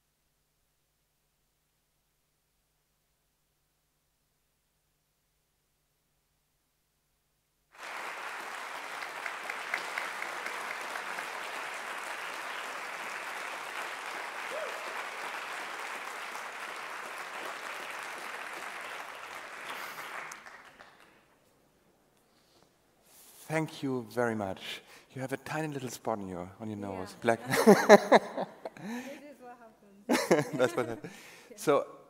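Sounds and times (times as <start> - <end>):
audience applause: 7.8 - 21.2.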